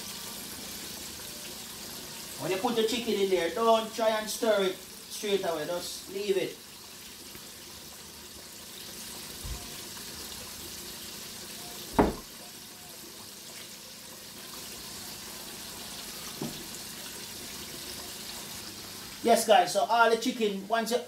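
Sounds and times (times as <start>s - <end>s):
deep-frying oil sizzling: 0.0s - 21.0s
knocks: 11.9s - 12.2s.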